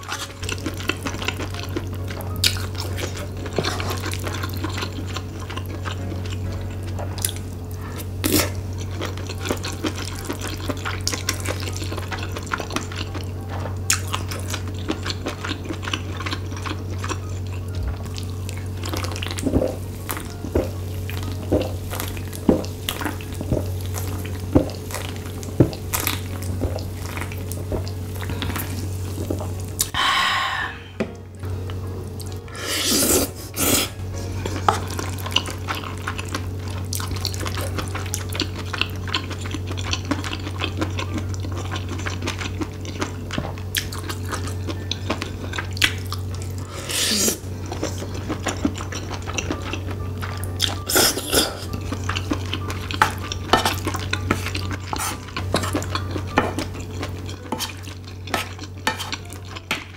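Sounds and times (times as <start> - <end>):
chewing: 0.0 - 30.0, 31.7 - 59.9
wooden spoon scraping pan: 54.3 - 55.7, 57.5 - 57.8.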